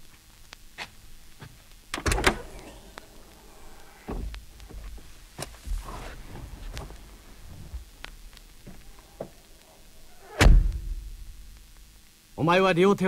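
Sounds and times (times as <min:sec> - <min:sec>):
heavy door thud: 0:02.0 - 0:07.0, 0:10.3 - 0:11.1.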